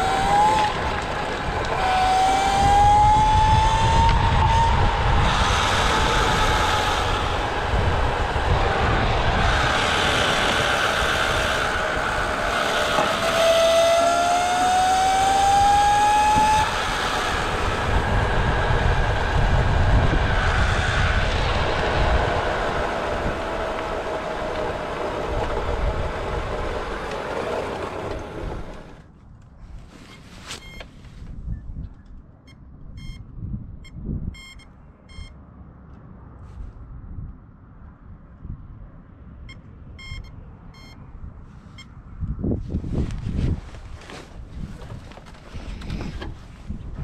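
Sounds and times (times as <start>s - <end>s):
electric motor whine: 0.0s - 28.9s
rushing noise: 0.0s - 29.0s
low rumble: 2.4s - 13.4s.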